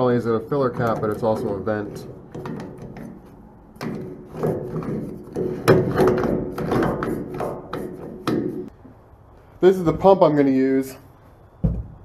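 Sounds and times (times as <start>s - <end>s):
scraping on metal tank cap: 0.5s - 8.7s.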